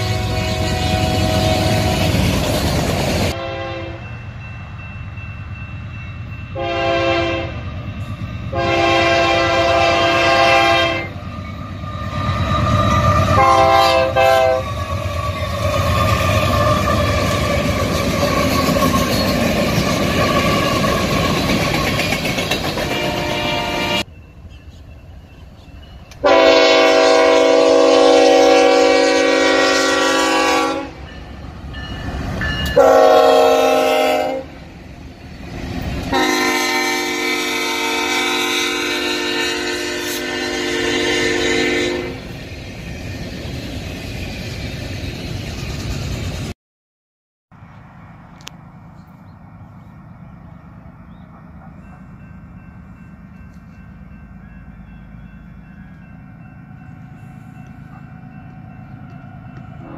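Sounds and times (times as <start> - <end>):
locomotive air horn blasts: 0.0 - 2.2, 3.3 - 4.1, 6.6 - 7.6, 8.5 - 11.2, 13.0 - 14.7, 22.8 - 24.1, 26.2 - 31.1, 32.7 - 34.6, 36.1 - 42.3
freight train rumble: 0.0 - 46.6, 47.5 - 59.9.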